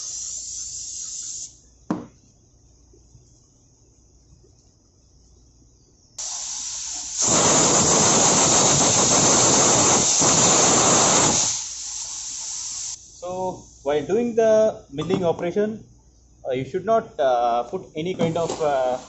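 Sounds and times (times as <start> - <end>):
compressed air blow gun blast: 0.0 - 1.5, 6.2 - 13.0.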